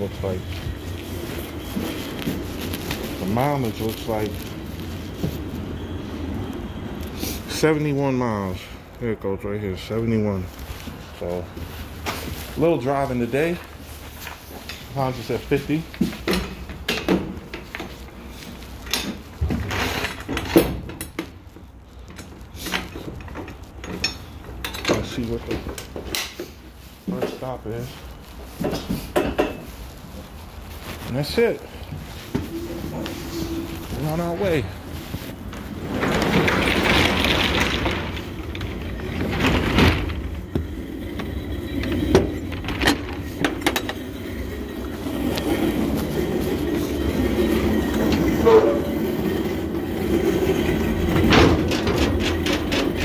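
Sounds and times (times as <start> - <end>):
rushing noise: 30.6 - 51.6.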